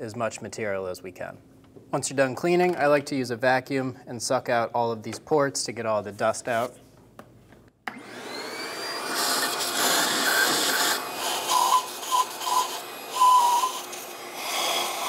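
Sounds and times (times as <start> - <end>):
vacuum cleaner motor whine: 7.9 - 15.0
hose suction noise: 8.0 - 15.0.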